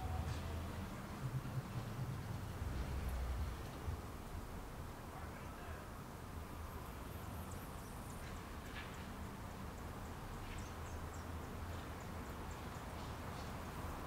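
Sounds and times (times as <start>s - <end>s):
low rumble: 0.0s - 4.1s.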